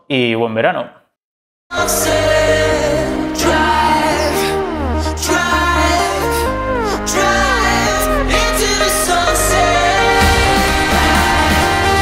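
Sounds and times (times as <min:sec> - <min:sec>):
synth music with bass: 0:01.7 - 0:12.0
percussion hits: 0:10.1 - 0:12.0.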